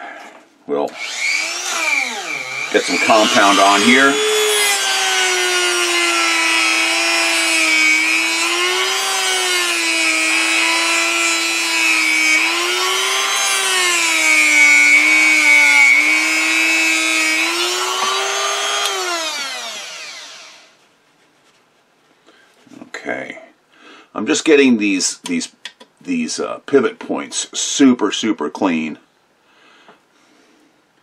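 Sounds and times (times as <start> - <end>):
rotary tool high whine: 0.9 - 20.8.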